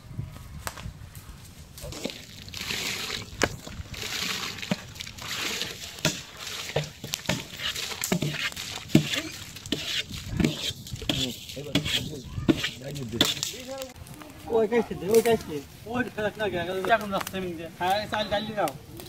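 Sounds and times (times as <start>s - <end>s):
rice splashing into boiling water: 1.8s - 14.0s
metal ladle scraping and clinking: 1.9s - 13.5s
voices talking: 11.0s - 19.0s.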